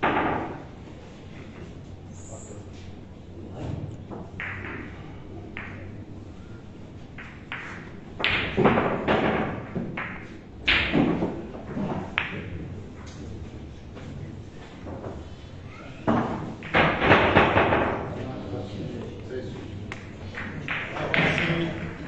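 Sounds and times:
billiard balls clacking: 0.0 - 0.8, 4.0 - 6.0, 7.0 - 13.3, 16.0 - 18.2, 19.6 - 22.0.

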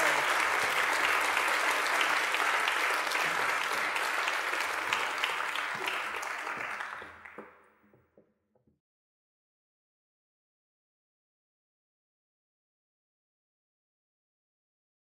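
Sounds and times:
audience applauding: 0.0 - 7.7.

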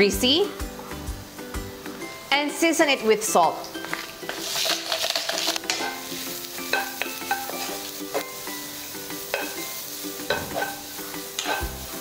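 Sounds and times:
carrots sizzling in oil: 0.0 - 12.0
spatula tapping and scraping pan: 6.6 - 8.4, 9.3 - 11.8.

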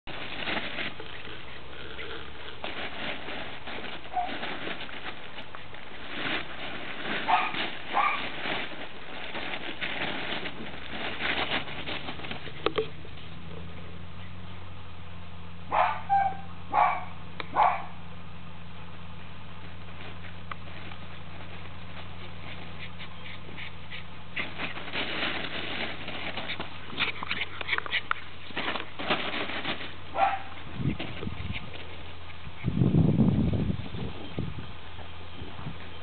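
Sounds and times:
plastic tarpaulin rustling: 0.0 - 13.4, 19.6 - 34.2
puppy yaps: 15.7 - 17.9.

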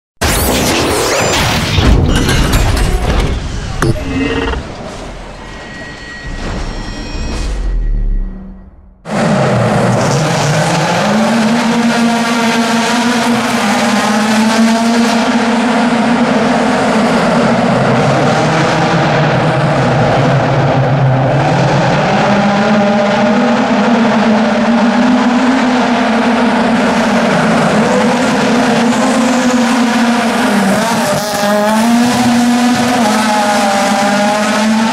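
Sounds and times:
race car engine revving: 9.0 - 34.9.

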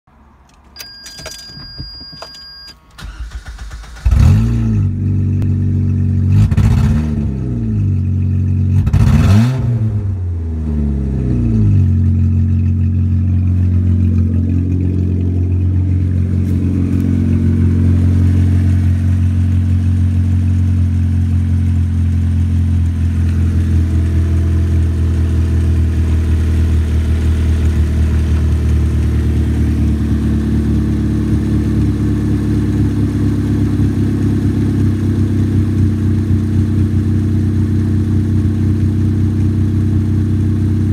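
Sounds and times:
car engine starting and revving: 3.0 - 40.9
car engine idling: 4.9 - 6.4, 10.1 - 40.9.

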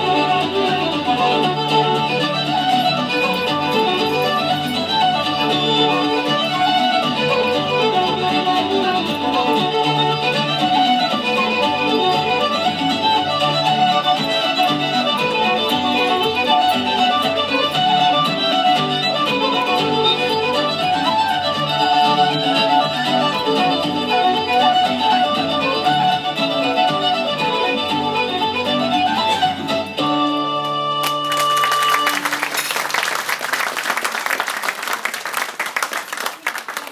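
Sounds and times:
fiddle dance music: 0.0 - 36.9
audience applause: 31.0 - 36.9.

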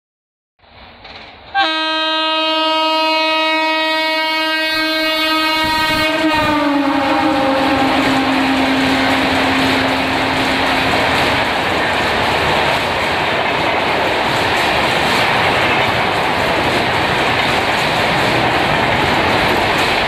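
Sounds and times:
passing train coaches clattering: 0.6 - 20.0
train horn blast: 1.6 - 11.2.

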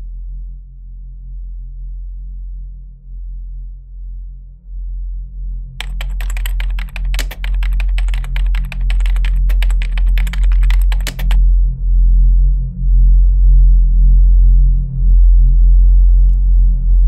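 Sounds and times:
computer keyboard typing: 5.8 - 11.4.

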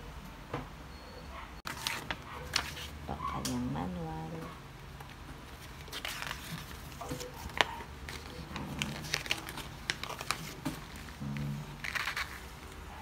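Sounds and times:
paper pages rustling: 1.7 - 3.0, 5.0 - 12.8.

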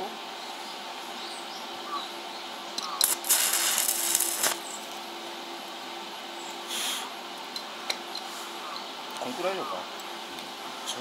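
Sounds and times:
steady hum: 0.0 - 11.0
welding arc crackling: 2.8 - 5.1.

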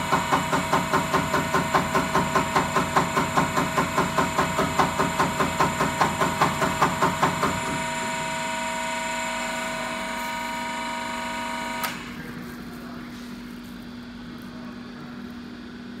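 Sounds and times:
low machine hum: 0.0 - 16.0
machine whine with several tones: 7.3 - 12.2.

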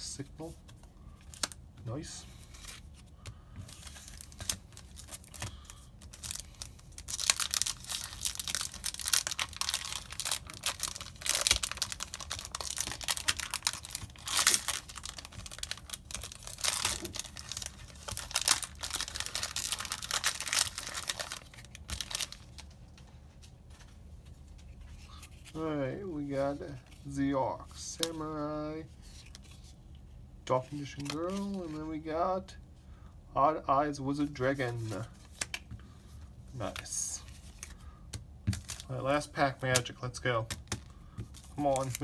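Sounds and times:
foil wrapper crackling: 4.0 - 22.6, 41.4 - 42.0.

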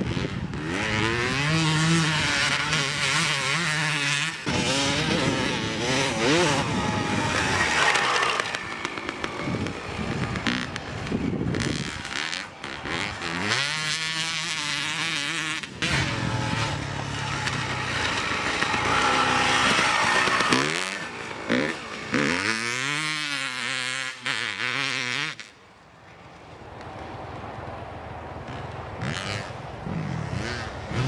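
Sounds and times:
motocross engine revving hard: 0.0 - 25.5, 28.5 - 31.0.

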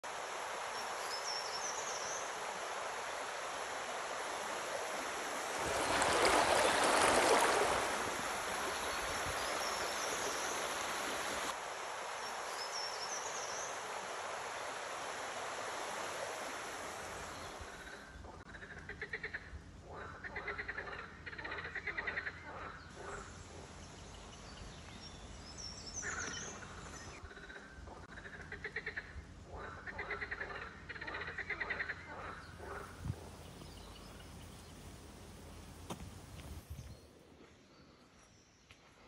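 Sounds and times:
river water rushing: 0.1 - 17.6.

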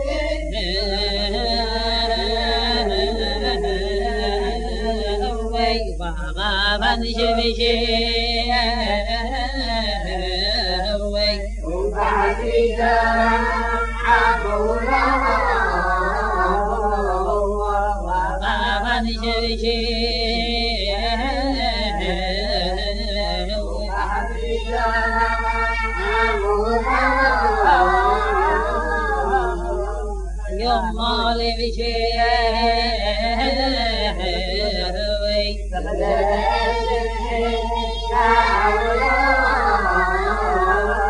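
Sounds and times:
man singing unaccompanied: 0.0 - 41.0
steady low recording hum: 0.0 - 41.0.

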